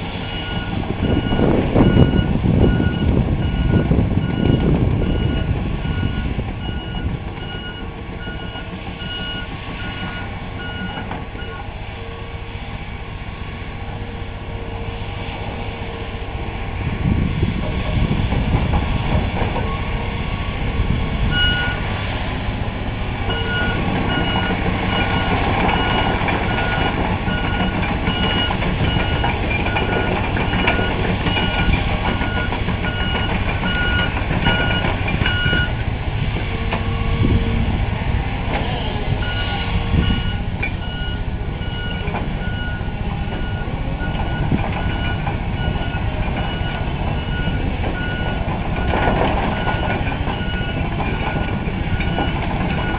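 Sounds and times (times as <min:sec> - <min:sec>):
diesel heavy equipment running: 0:00.0 - 0:52.9
backup alarm beeping: 0:00.2 - 0:11.6, 0:21.3 - 0:21.8, 0:23.3 - 0:35.8, 0:39.2 - 0:48.9, 0:49.6 - 0:52.9.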